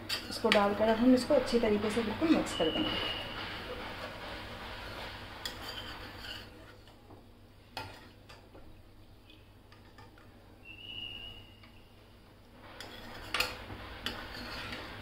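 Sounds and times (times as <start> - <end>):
ladle scraping pan: 0.0 - 7.0, 7.8 - 8.2, 12.6 - 15.0
ladle stirring gravy: 0.0 - 8.6, 12.6 - 15.0.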